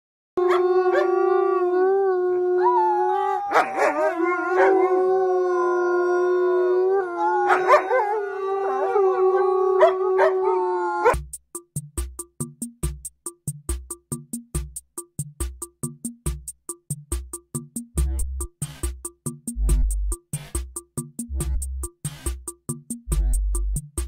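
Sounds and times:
child howling: 0.4 - 11.2
wolf-like dogs howling in chorus: 0.4 - 11.2.

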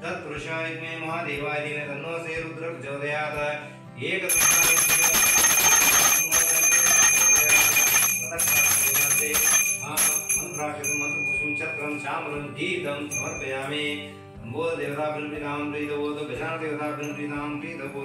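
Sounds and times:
music: 0.0 - 18.0
hand bell ringing rapidly: 4.3 - 12.2, 13.1 - 13.7.

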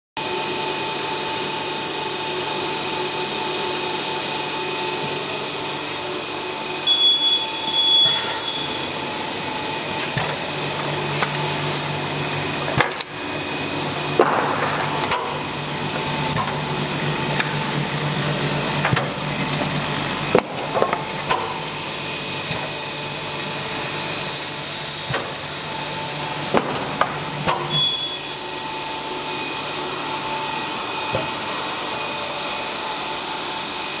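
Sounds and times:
laminator whirring: 0.2 - 34.0
faint high whine: 6.8 - 9.1, 27.7 - 29.7.

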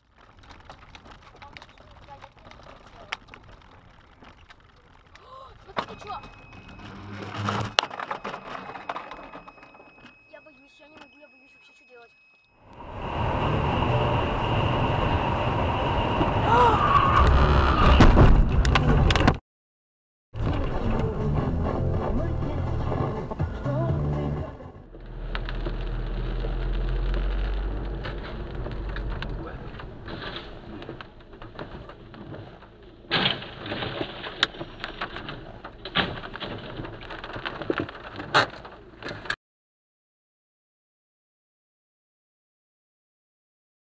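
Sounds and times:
knocks and debris clattering: 0.0 - 10.5, 25.4 - 39.4
car crash: 12.8 - 19.3, 24.9 - 39.4
road noise inside a car: 24.9 - 39.2.

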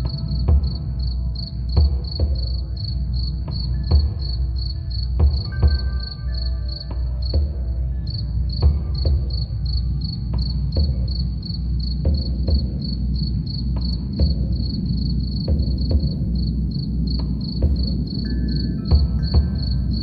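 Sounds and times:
cricket chirping: 0.0 - 20.0
slow low drum beats: 0.0 - 20.0
wind chimes ringing: 18.2 - 20.0.

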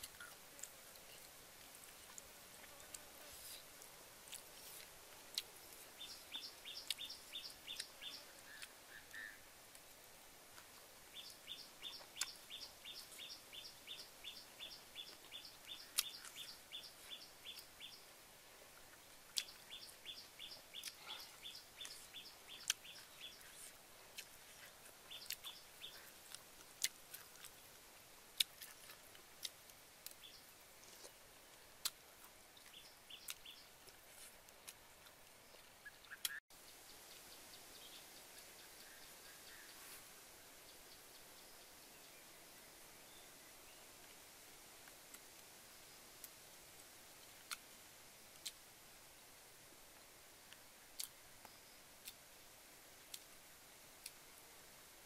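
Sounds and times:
sharp eating clicks: 20.8 - 22.0, 22.6 - 27.6.

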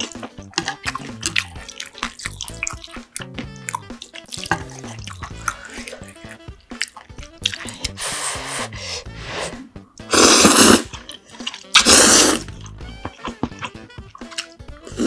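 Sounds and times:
noodles and soup sloshing: 0.0 - 3.1.

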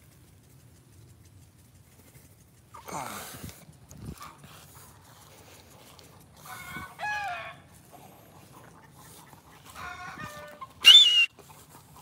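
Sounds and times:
chicken call: 9.7 - 11.4.

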